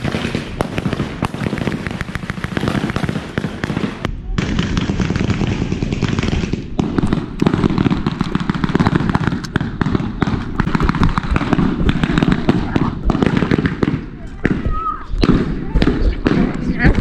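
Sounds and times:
wind buffeting microphone: 0:00.0 - 0:17.0
sharp cracks and clicks: 0:08.1 - 0:09.6.

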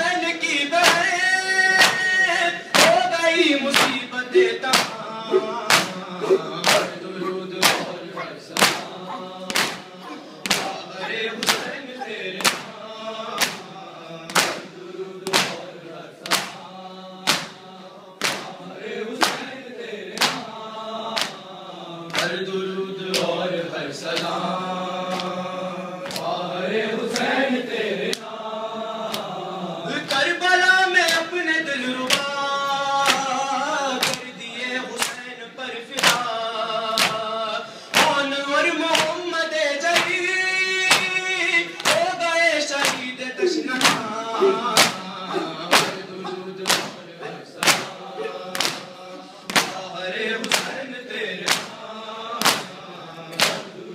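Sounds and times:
men chanting in unison: 0:00.0 - 0:53.9
hand slaps on chest: 0:08.6 - 0:10.8, 0:16.2 - 0:16.6, 0:18.2 - 0:18.6, 0:20.2 - 0:20.5, 0:40.9 - 0:41.1, 0:49.5 - 0:49.8.

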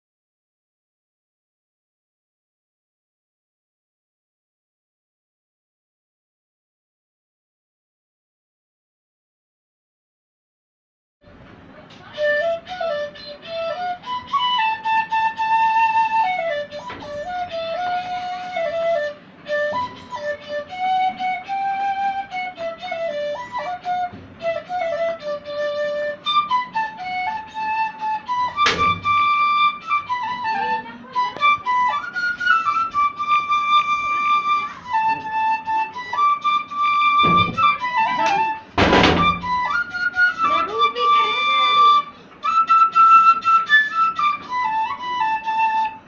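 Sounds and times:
bamboo flute melody: 0:11.8 - 0:46.0.

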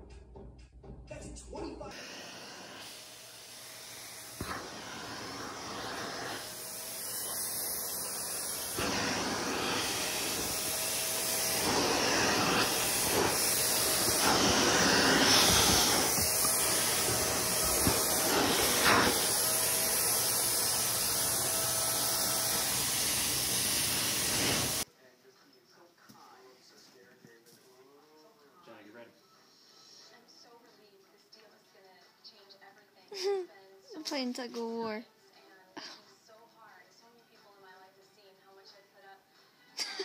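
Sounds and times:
vacuum cleaner rushing hiss: 0:01.9 - 0:24.8.

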